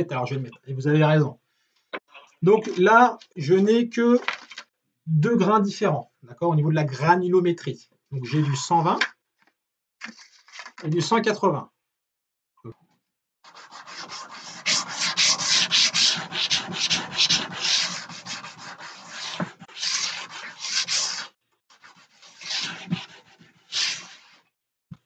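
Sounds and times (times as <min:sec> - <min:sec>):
sandpaper rasping on wood: 0:13.5 - 0:24.4.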